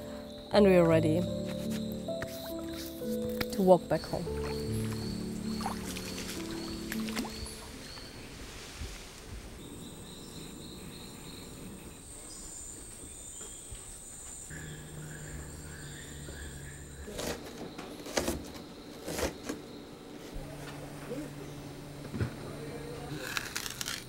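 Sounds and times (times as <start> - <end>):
insects droning: 0.0 - 24.0
low hum: 14.5 - 17.4, 20.0 - 24.0.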